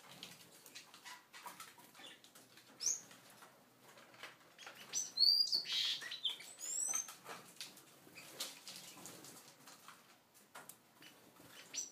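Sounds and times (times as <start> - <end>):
birds moving in cage: 0.0 - 11.9
birds chirping: 0.6 - 3.4, 4.5 - 7.2, 11.0 - 11.9.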